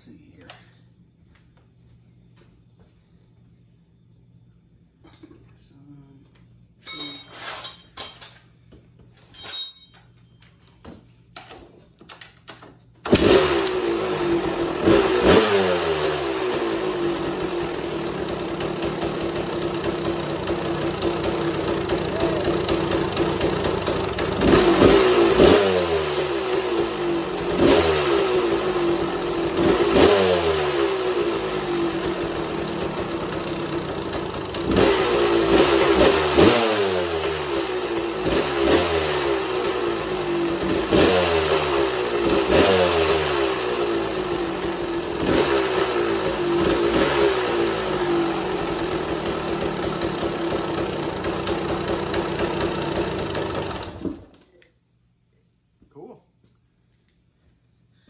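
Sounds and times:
two-stroke motorcycle engine revving: 13.0s - 54.3s.

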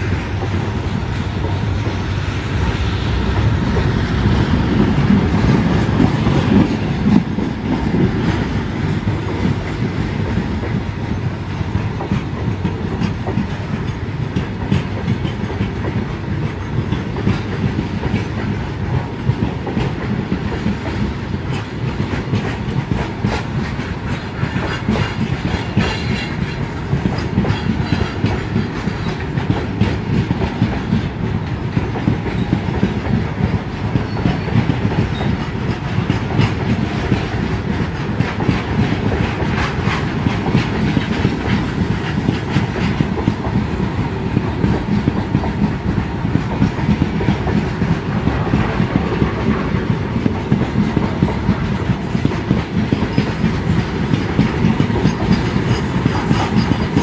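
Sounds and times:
freight train rumbling: 0.0s - 57.0s
wheels clattering over rail joints: 21.5s - 57.0s.

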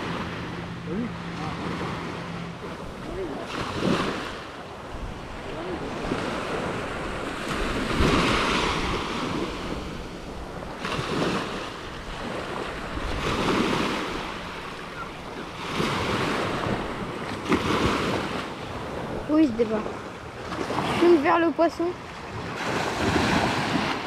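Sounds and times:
wind on microphone: 0.0s - 19.8s
surf washing onto beach: 0.0s - 24.0s.

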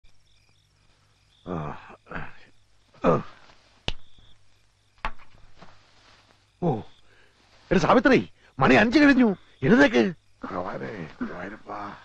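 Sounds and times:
man groaning: 3.0s - 3.4s.

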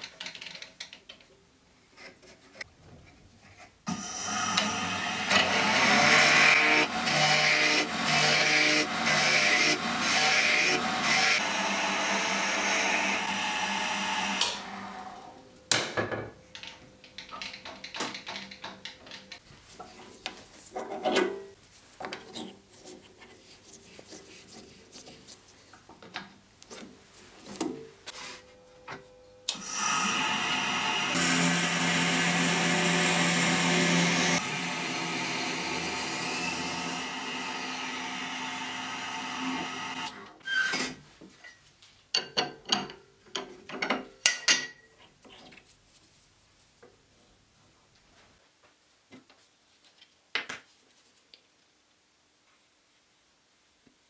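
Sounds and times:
drill boring into wood: 3.9s - 14.9s, 29.5s - 40.2s
wood lathe running: 3.9s - 15.3s, 29.5s - 40.2s.

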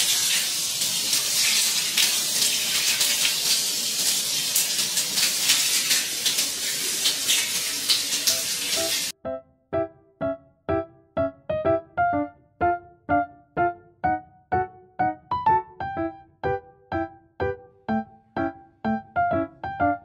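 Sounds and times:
water gushing into bathtub: 0.0s - 9.1s
piano music: 8.2s - 20.0s.

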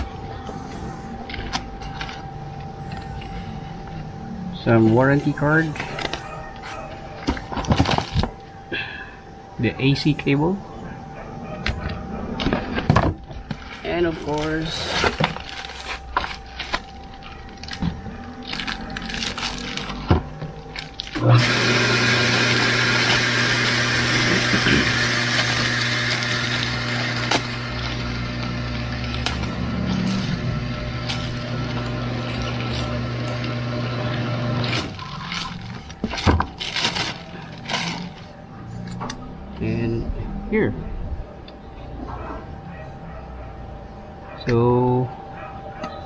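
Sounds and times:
steady low hum: 0.0s - 21.4s, 23.7s - 46.0s
plastic bag rustling: 5.8s - 8.4s, 12.6s - 21.2s, 34.7s - 38.4s.

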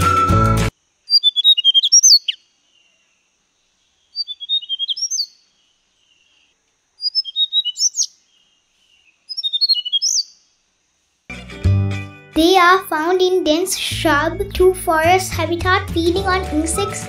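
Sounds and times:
bird singing high notes: 1.1s - 2.4s, 4.2s - 5.4s, 9.3s - 10.3s.

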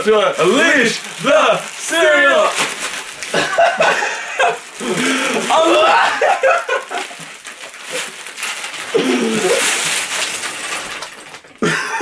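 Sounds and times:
cereal pieces scattering: 0.0s - 12.0s
plastic bag crinkling and tearing: 0.0s - 12.0s
people laughing: 3.3s - 7.3s, 11.6s - 12.0s
people yelling: 5.4s - 6.6s.

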